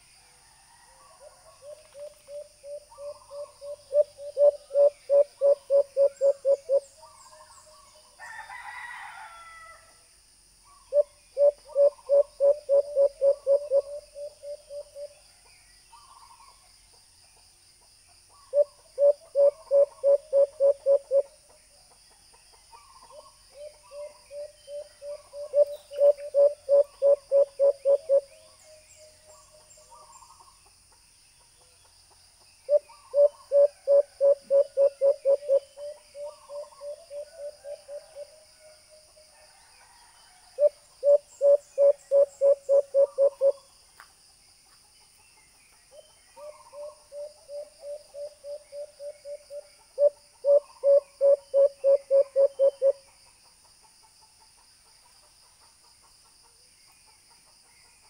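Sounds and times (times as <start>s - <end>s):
dove call through small speaker: 1.6s - 6.9s, 10.8s - 15.1s, 18.5s - 21.4s, 23.1s - 28.3s, 32.7s - 38.2s, 40.6s - 43.6s, 46.4s - 53.0s.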